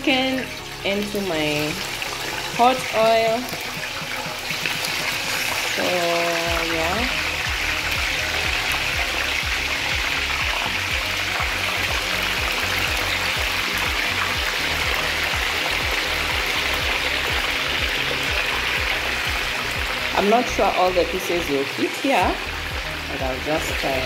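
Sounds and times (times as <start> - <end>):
background music with steady beat: 0.0 - 24.0
chicken deep-frying in oil: 0.0 - 24.0.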